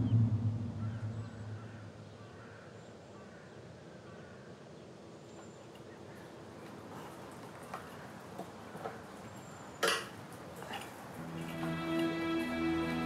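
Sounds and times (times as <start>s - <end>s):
low thunder rumble: 0.0s - 2.5s
faint bird calls: 0.0s - 8.2s.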